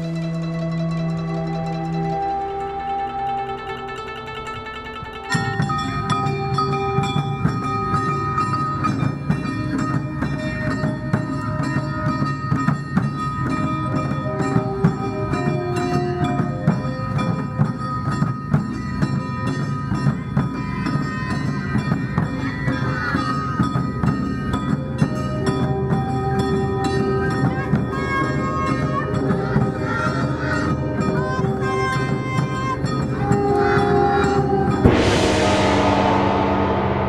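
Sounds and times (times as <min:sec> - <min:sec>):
held musical notes: 0:31.0 - 0:37.0
quick dense percussion: 0:34.4 - 0:37.0.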